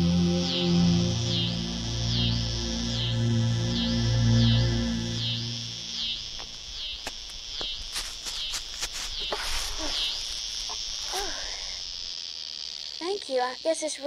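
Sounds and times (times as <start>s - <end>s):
insects chirring: 0.0s - 14.0s
knocks and rustles of digging: 7.0s - 11.3s.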